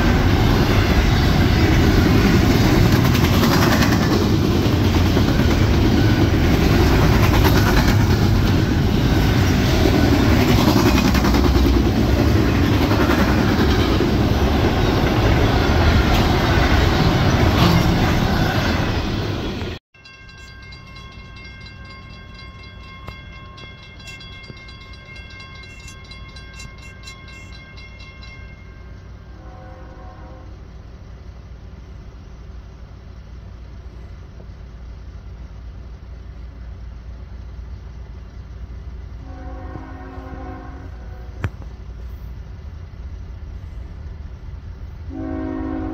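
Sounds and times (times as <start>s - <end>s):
train rumbling: 0.0s - 45.9s
locomotive horn chord: 29.2s - 30.7s, 39.2s - 41.5s, 45.1s - 45.9s.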